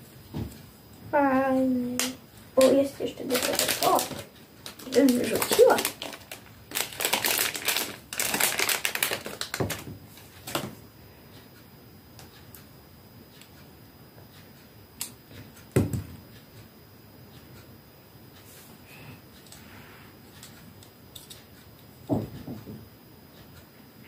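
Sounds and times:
plastic wrapper crinkling: 0:02.6 - 0:09.9.

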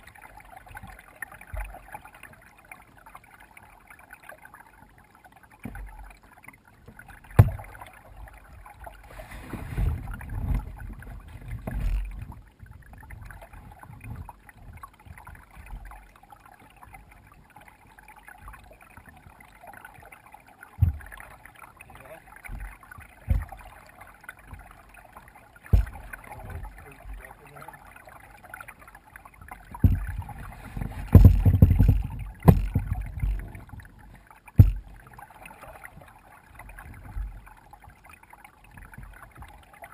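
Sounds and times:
paddle strokes: 0:00.0 - 0:39.9
water moving along hull: 0:00.0 - 0:39.9
sharp knocks: 0:07.3 - 0:07.7, 0:23.3 - 0:23.6, 0:25.7 - 0:26.1, 0:29.7 - 0:30.3, 0:30.9 - 0:33.4, 0:34.6 - 0:34.9.

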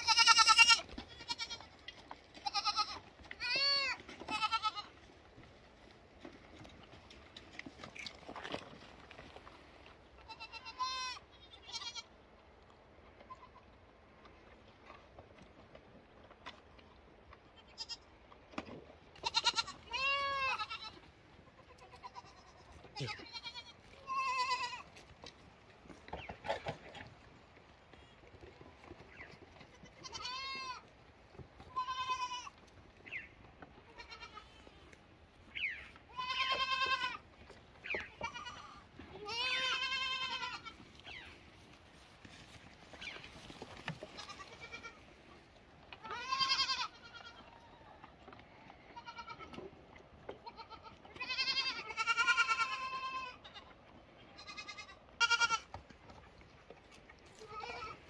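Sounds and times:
goat kids bleating: 0:00.0 - 0:05.2, 0:10.2 - 0:12.2, 0:13.2 - 0:13.8, 0:17.4 - 0:18.3, 0:19.1 - 0:25.3, 0:28.8 - 0:30.9, 0:31.6 - 0:56.0, 0:57.2 - 0:58.0.

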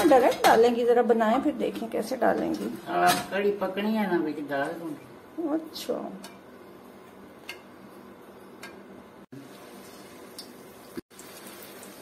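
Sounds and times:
oil sizzling in a frying pan: 0:09.3 - 0:12.0
small pops of frying oil: 0:10.2 - 0:12.0.

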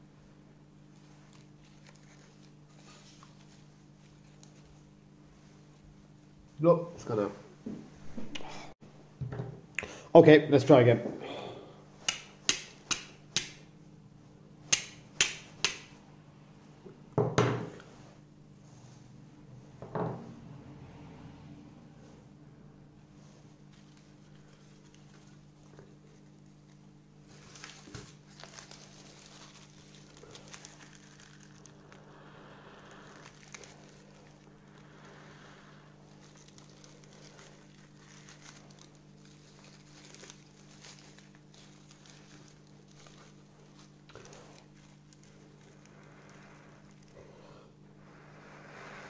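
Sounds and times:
steady low hum: 0:00.0 - 0:49.0
dry bark crinkling in fingers: 0:00.9 - 0:05.0, 0:23.6 - 0:47.2.

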